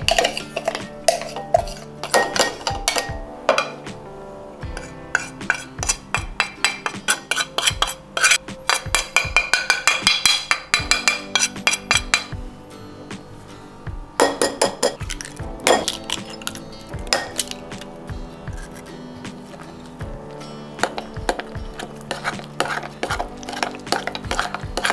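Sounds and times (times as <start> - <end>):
metal spoon clinking on dishes: 0.0 - 3.8, 4.8 - 12.3, 15.6 - 17.6, 20.8 - 24.9
background music: 0.0 - 24.9
eggs cracking into glass bowl: 14.9 - 17.9.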